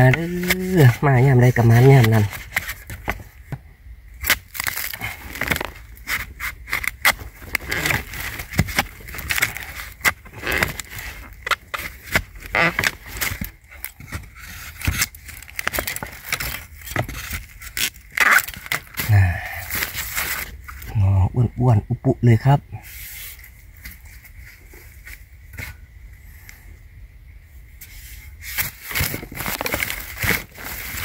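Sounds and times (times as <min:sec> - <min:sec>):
bamboo sheaths crackling and ripping: 0:00.0 - 0:03.5, 0:04.1 - 0:21.1, 0:27.8 - 0:31.0.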